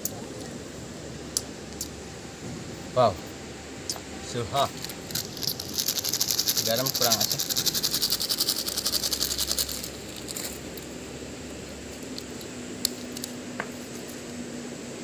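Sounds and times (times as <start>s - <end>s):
plastic packet rattling: 4.7s - 10.6s.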